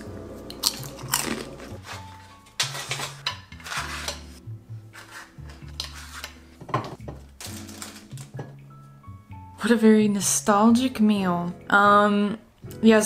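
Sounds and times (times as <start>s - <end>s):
background music with bass: 0.0s - 10.7s
spatula scraping metal sheet: 2.6s - 6.5s.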